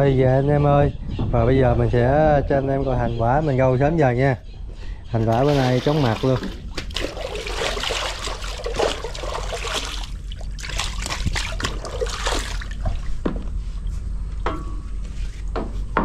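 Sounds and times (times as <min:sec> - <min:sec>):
steady low hum: 0:00.0 - 0:16.0
water trickling and splashing: 0:05.2 - 0:13.9.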